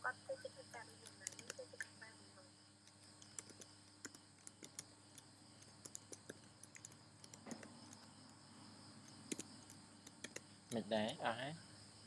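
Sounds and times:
steady background hiss: 0:00.0 - 0:12.0
keyboard keys clicking: 0:01.0 - 0:01.8, 0:02.9 - 0:08.1, 0:09.0 - 0:11.2.

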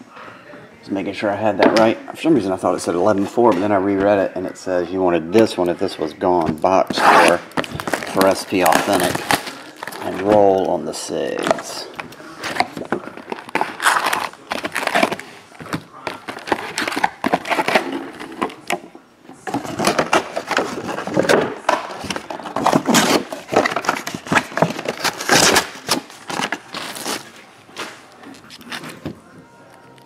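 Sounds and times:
foil packs crackling: 0:05.1 - 0:18.8, 0:19.4 - 0:30.0
cardboard box rustling: 0:06.3 - 0:29.2.

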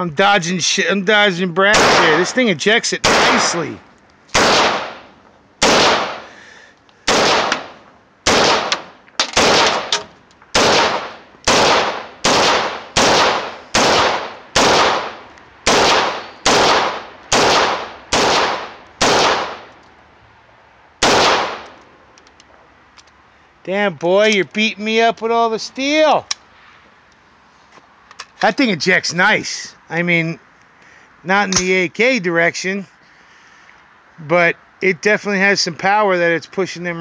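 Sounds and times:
rifle shots with echo: 0:01.7 - 0:03.7, 0:04.3 - 0:06.4, 0:07.1 - 0:19.7, 0:21.0 - 0:21.7.

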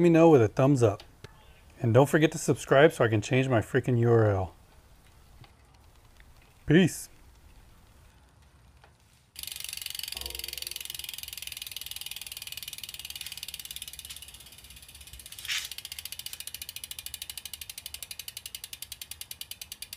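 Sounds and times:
bicycle freehub ticking: 0:04.5 - 0:19.9.

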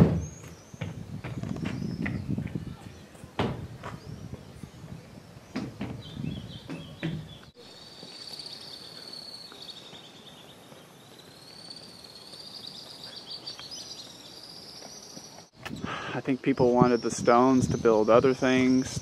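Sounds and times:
bird chirp: 0:00.0 - 0:03.2, 0:03.8 - 0:19.0
footsteps on wooden steps: 0:00.0 - 0:08.2
cicadas chorus: 0:00.0 - 0:19.0.

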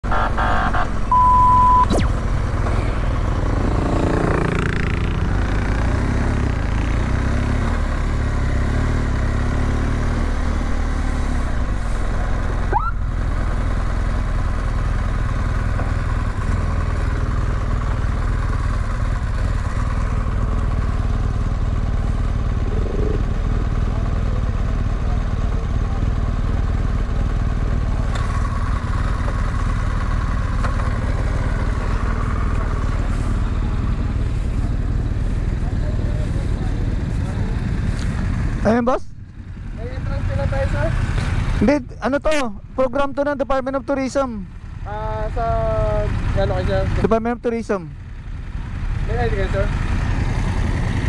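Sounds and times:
motorcycle engine running low: 0:00.0 - 0:08.4, 0:12.4 - 0:41.6, 0:47.9 - 0:51.0
short electronic beep: 0:00.1 - 0:03.0.

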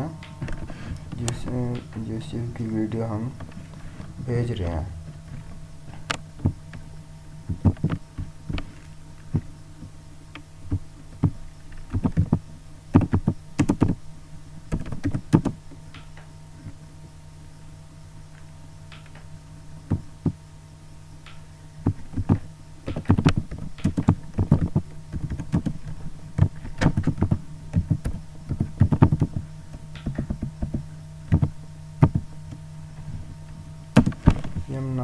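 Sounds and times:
low electrical hum: 0:00.0 - 0:35.0
computer keyboard typing: 0:13.0 - 0:14.0, 0:22.9 - 0:25.8.

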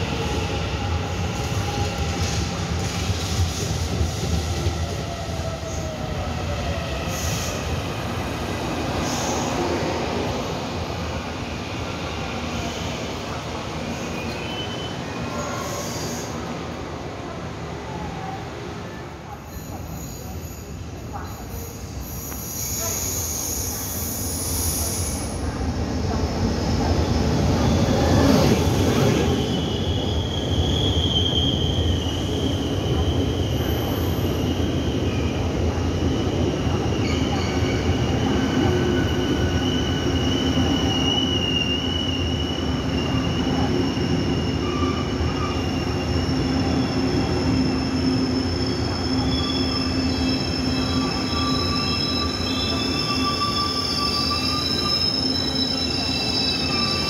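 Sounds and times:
train coaches rumbling: 0:00.0 - 0:57.0
wheel and brake squeal: 0:13.9 - 0:16.4, 0:19.5 - 0:25.3, 0:37.0 - 0:57.0.

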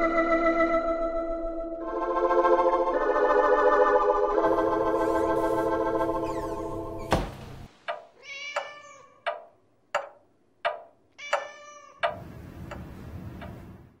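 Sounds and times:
sharp ticks: 0:07.9 - 0:13.8
meow-like animal calls: 0:08.2 - 0:09.2, 0:11.2 - 0:12.1.

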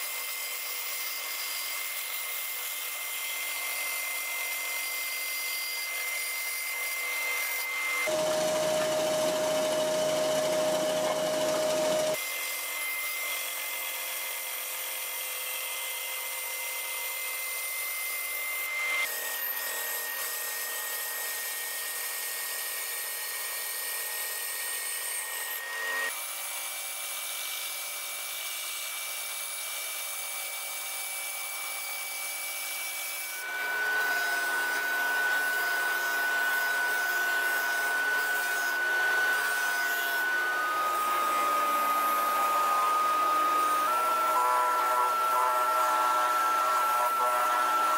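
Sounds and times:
disc sander grinding wood: 0:00.0 - 0:22.6, 0:33.0 - 0:47.9
band saw cutting plywood: 0:00.0 - 0:28.0, 0:30.1 - 0:47.9.

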